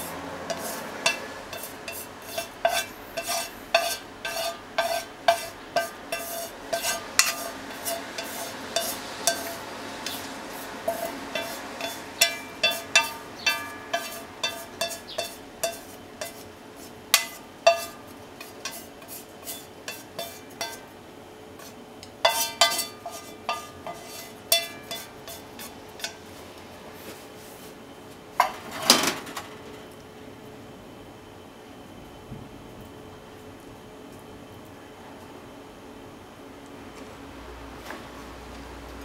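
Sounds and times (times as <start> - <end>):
faint steady hum: 0.0 - 39.0
chopsticks and pan clinking on bowl: 0.5 - 16.4, 17.2 - 20.9, 21.6 - 26.2
clatter of utensils: 0.5 - 16.4, 21.6 - 26.2, 28.4 - 29.8.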